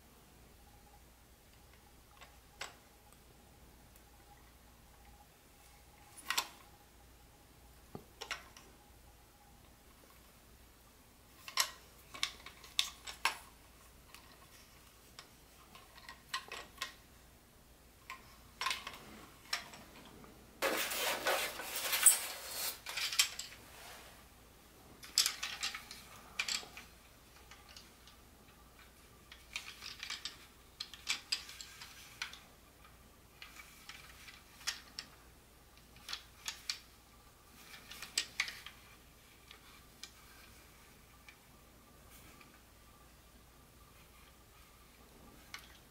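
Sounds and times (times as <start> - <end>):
plastic toy train clicking: 11.4 - 13.4, 15.2 - 17.0, 25.0 - 28.2, 28.8 - 35.2, 35.8 - 36.9, 37.6 - 41.4
rustling: 18.0 - 28.1.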